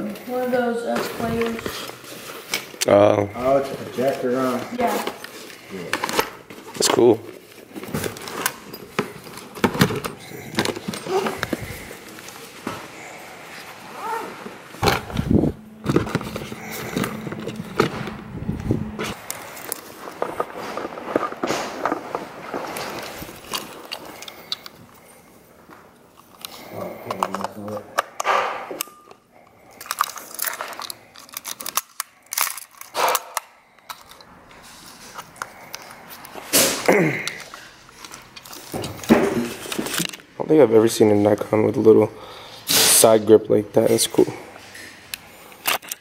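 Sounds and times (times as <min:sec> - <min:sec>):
cameras knocking in plastic bin: 0:07.7 - 0:11.9.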